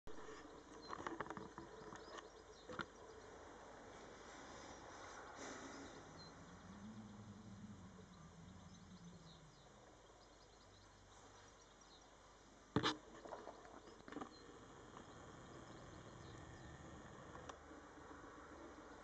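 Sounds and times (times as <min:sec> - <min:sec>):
birds chirping: 0:00.1 - 0:19.0
low hum: 0:03.0 - 0:12.0, 0:12.7 - 0:19.0.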